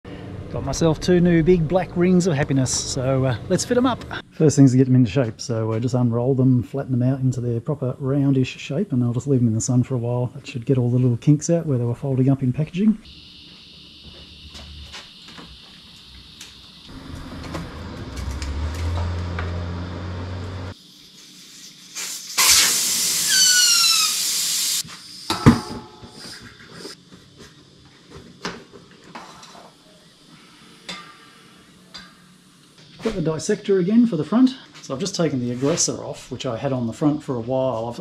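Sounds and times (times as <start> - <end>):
air hissing out of tyre: 20.6 - 25.4, 26.0 - 27.0
short falling squeaks: 22.4 - 24.2.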